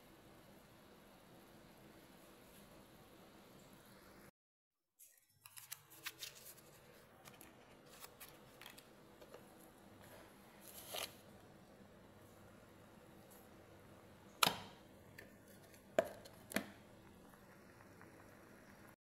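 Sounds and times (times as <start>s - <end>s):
low hiss: 0.0s - 4.3s, 7.9s - 19.0s
curry simmering ticks and pops: 16.0s - 19.0s.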